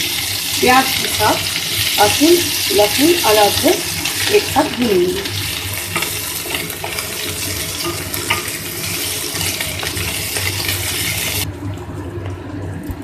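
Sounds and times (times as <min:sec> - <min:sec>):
onions sizzling in oil: 0:00.0 - 0:11.5
spatula scraping pan: 0:00.9 - 0:11.5.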